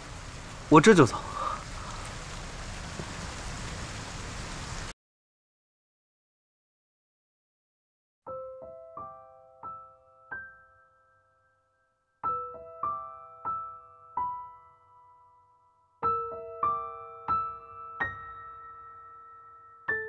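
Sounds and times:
soft piano music: 8.3 - 20.0.

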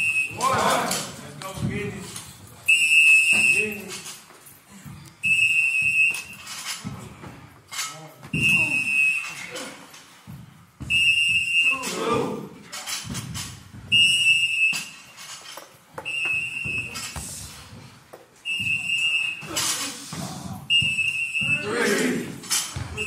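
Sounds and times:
high whistle-like tone: 0.0 - 0.8, 2.7 - 3.8, 5.2 - 6.5, 8.4 - 9.5, 10.9 - 12.0, 13.9 - 15.2, 16.0 - 17.3, 18.4 - 19.6, 20.7 - 21.9
voices: 0.0 - 4.2, 10.9 - 13.0, 18.5 - 23.0.

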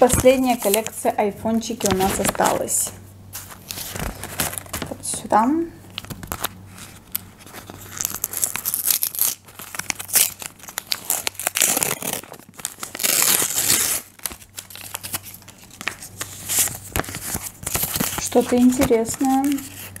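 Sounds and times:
paper crinkling and rustling: 0.0 - 1.1, 1.7 - 5.3, 5.9 - 20.0
paper strip peeling and tearing: 6.0 - 20.0.

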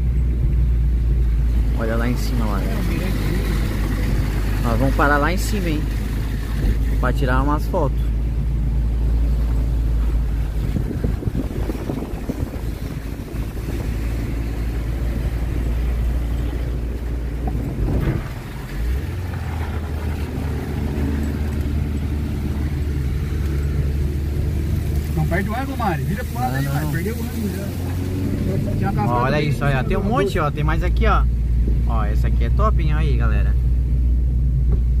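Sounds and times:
car engine drone: 0.0 - 35.0
wind noise: 9.2 - 24.9.

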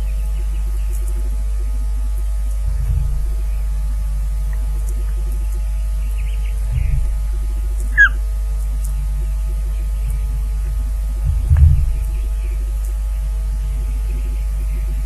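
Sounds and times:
electrical hum and buzz: 0.0 - 15.0
dull low thump: 2.5 - 4.7, 6.6 - 8.2, 10.0 - 12.4
downward-sliding whistled bird call: 7.9 - 8.2.

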